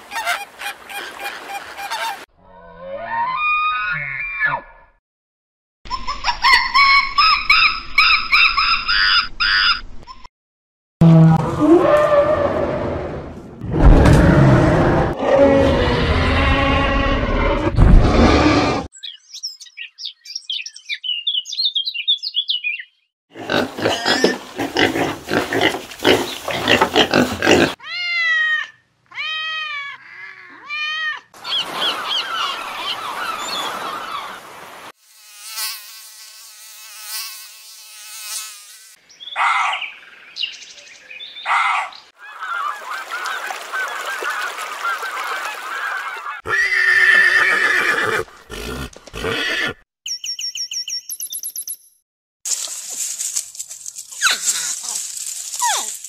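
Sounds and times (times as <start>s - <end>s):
horses neighing: 46.4s - 49.8s
high chirping: 50.1s - 52.0s.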